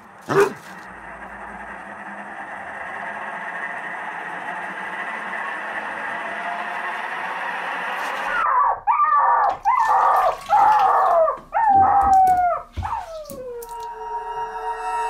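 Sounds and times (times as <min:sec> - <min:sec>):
hissing tension drone: 0:00.0 - 0:08.6, 0:13.5 - 0:15.0.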